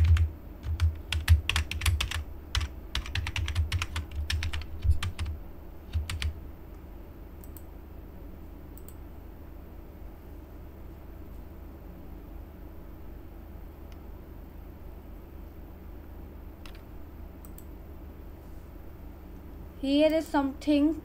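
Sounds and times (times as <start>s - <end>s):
typing on computer keyboard: 0.0s - 6.4s, 16.6s - 16.8s
faint low hum: 0.0s - 21.0s.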